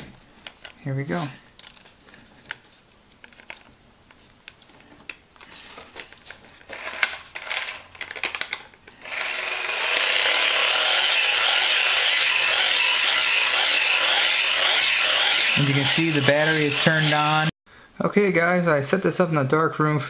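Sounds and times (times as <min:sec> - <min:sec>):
hand-cranked generator whirring: 0:09.0 - 0:17.5.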